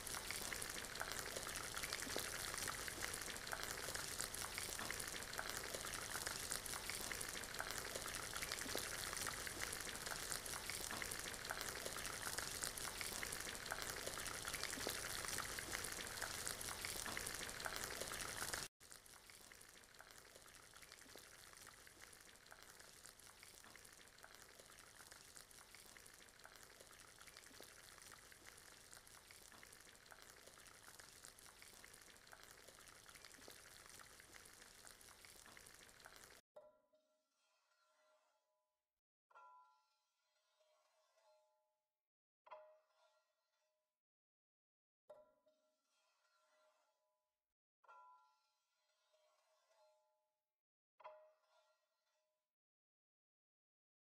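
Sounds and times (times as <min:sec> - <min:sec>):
vegetables sizzling in hot oil: 0:00.0 - 0:36.4.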